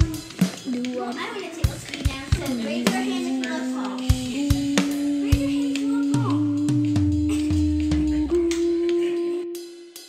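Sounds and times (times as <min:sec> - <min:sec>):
drum hits: 0:00.0 - 0:09.0
bass notes: 0:02.1 - 0:09.6.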